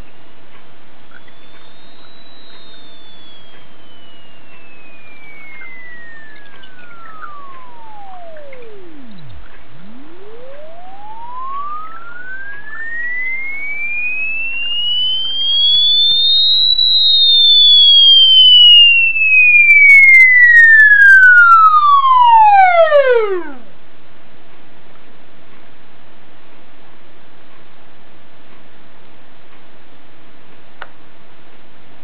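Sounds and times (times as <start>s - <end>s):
sine wave test tone sweeping: 1.0s - 24.1s
crackles: 1.1s - 23.8s.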